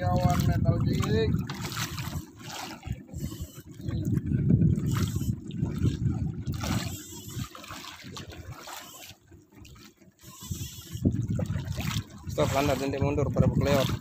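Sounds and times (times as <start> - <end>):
water lapping against a boat: 0.0 - 14.0
wind buffeting microphone: 0.0 - 14.0.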